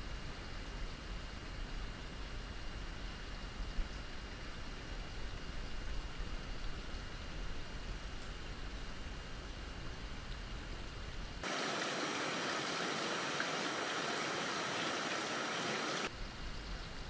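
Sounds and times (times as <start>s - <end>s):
running water rushing: 11.4s - 16.1s.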